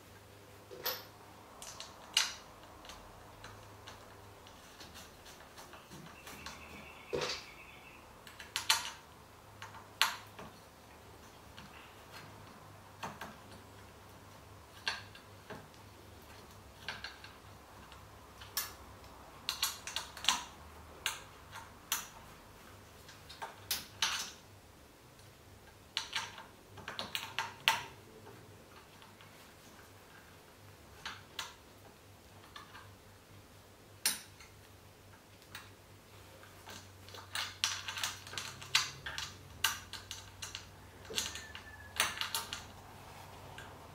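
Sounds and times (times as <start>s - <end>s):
metal clicks and clinks: 36.6s - 42.7s.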